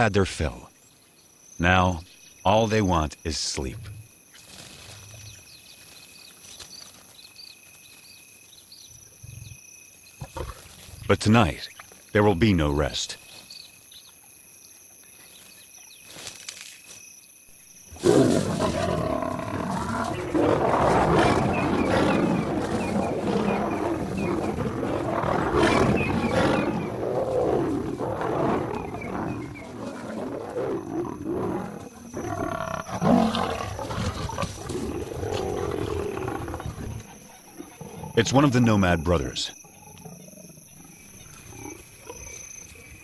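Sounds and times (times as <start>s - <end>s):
crickets chirring: 0.0s - 43.0s
lions snarling and growling: 10.2s - 11.6s, 17.9s - 43.0s.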